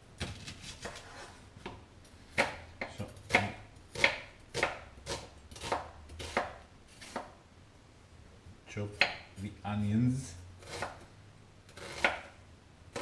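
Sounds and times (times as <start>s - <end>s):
knife chopping on wooden board: 1.6s - 7.4s, 9.0s - 9.3s, 10.6s - 11.0s, 11.8s - 12.3s.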